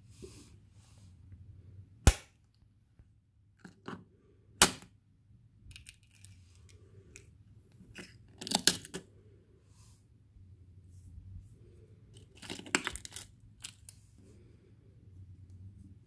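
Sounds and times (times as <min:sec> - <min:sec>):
plastic and shell clattering: 0:12.2 - 0:13.9.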